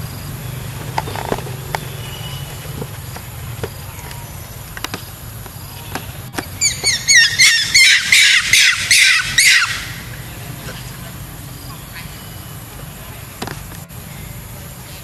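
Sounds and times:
monkey screaming: 0:06.5 - 0:12.4.

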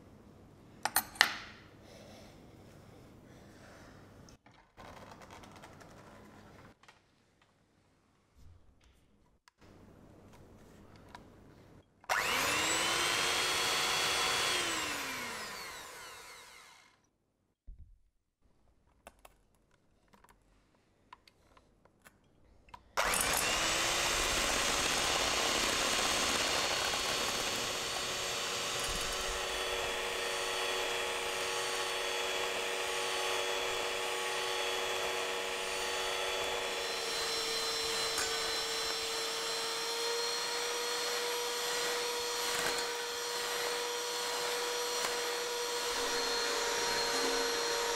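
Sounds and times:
electric hand mixer whining: 0:12.1 - 0:17.0, 0:23.0 - 0:47.9.

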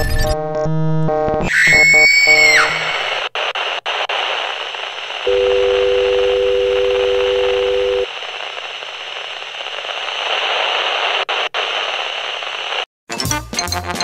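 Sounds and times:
television static hiss: 0:03.0 - 0:12.9.

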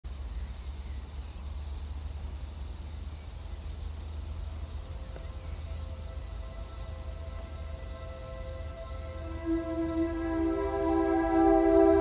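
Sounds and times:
insects stridulating: 0:00.1 - 0:12.0
soft music tones: 0:04.6 - 0:12.0.

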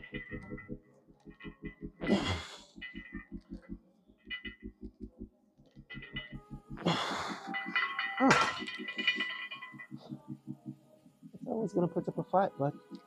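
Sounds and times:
steady low pulse: 0:00.0 - 0:11.5.

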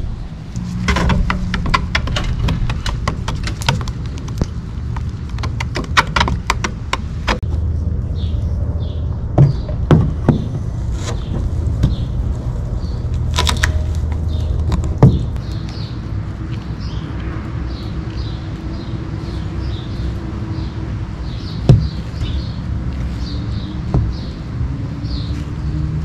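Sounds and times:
steady low rumble: 0:00.0 - 0:26.0
dull knocks: 0:09.3 - 0:12.0, 0:14.7 - 0:15.4, 0:21.6 - 0:22.4, 0:23.8 - 0:24.3.

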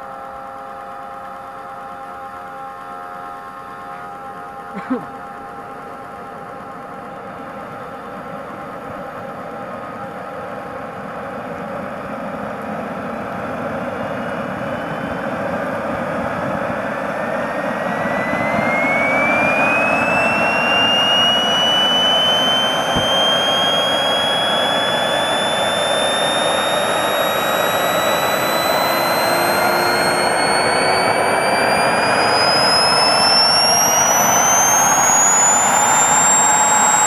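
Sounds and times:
turbine whine rising in pitch: 0:00.0 - 0:37.0.

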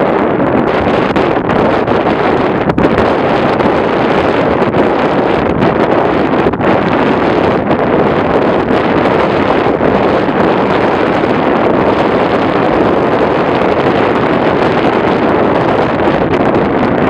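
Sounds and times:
wind blowing across microphone: 0:00.0 - 0:17.0.

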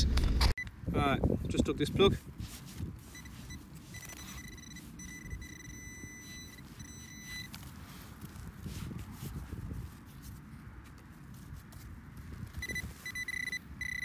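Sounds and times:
wind rumble on microphone: 0:00.0 - 0:03.5, 0:06.8 - 0:13.5
pinpointer high-pitched tone: 0:03.0 - 0:07.5, 0:12.6 - 0:14.0.

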